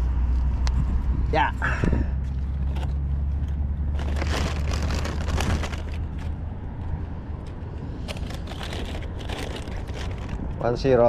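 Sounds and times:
plastic bag crinkling: 3.9 - 6.3, 8.2 - 10.6.

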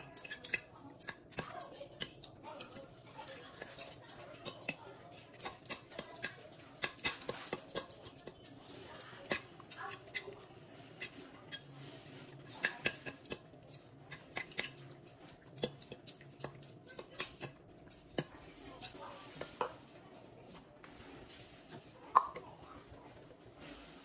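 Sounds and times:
forks clinking against a crock: 0.0 - 11.7, 12.4 - 19.0.

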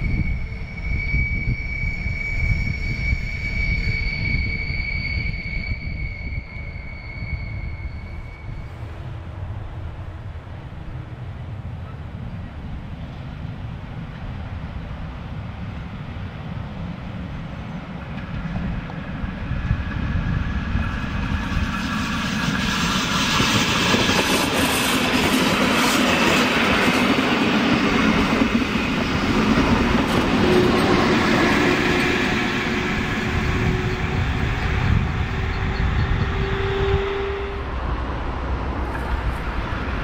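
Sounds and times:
train wheels clattering on track: 17.8 - 40.0.

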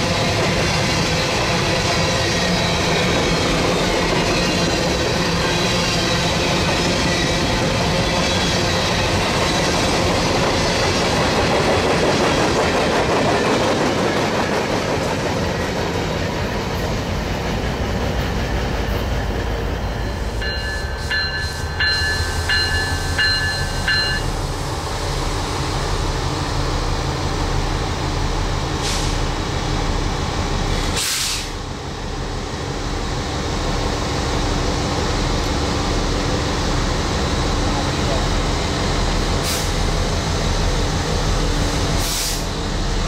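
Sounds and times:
freight train rumbling: 0.0 - 43.0
bell ringing rapidly: 20.4 - 24.3
short hisses: 31.0 - 31.6.

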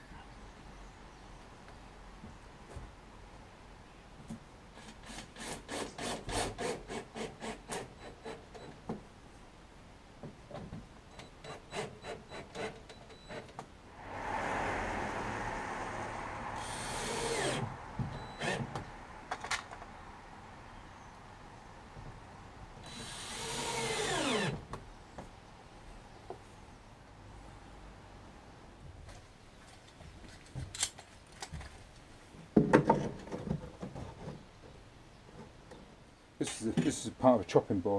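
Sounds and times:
drill motor running: 22.9 - 24.6.

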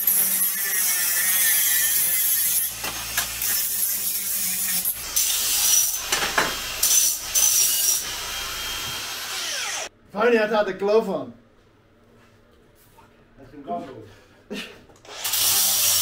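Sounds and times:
angle grinder grinding steel: 0.0 - 9.9, 15.1 - 16.0.

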